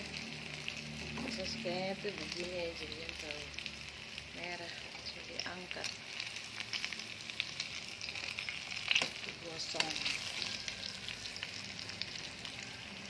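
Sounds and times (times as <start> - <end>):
deep-frying sizzle with pops: 0.0 - 13.0.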